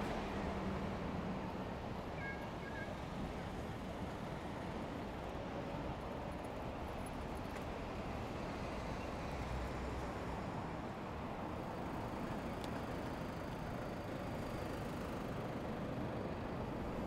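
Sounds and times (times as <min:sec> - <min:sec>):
city traffic rumble: 0:00.0 - 0:17.0.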